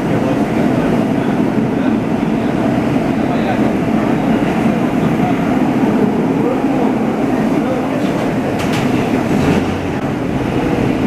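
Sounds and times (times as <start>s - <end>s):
subway train rumbling on track: 0.0s - 11.0s.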